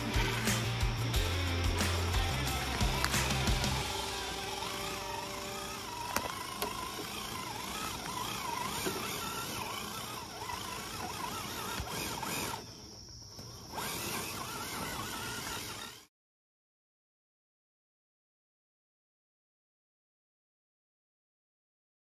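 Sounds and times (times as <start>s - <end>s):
rc car electric motor whine: 0.0s - 16.1s.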